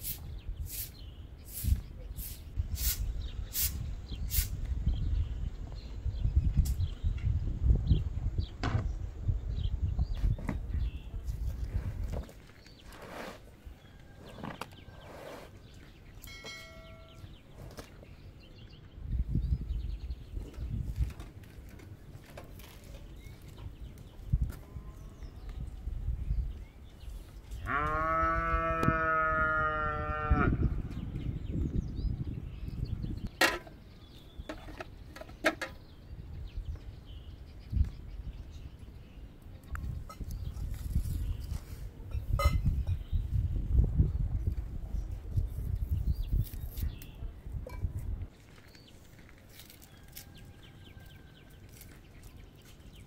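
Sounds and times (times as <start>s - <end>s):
small bell ringing: 16.3s - 17.3s.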